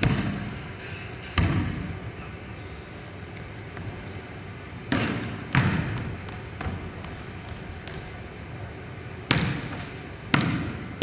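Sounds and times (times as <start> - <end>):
basketball bouncing on wooden floor: 4.9 - 8.2, 9.3 - 10.9.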